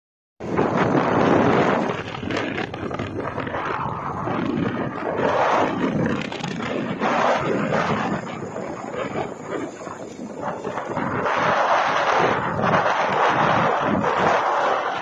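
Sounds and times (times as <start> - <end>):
road noise: 0.4 - 15.0
wind buffeting microphone: 0.4 - 15.0.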